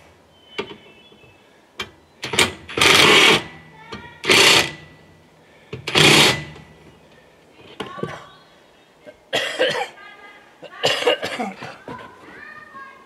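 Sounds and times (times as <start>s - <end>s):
impact driver running: 2.7s - 3.5s, 4.2s - 4.9s, 5.8s - 6.6s.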